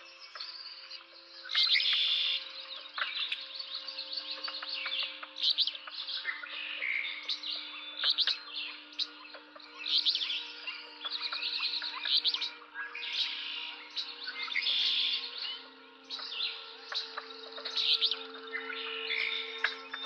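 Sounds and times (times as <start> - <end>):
songbirds singing: 0.0 - 20.0.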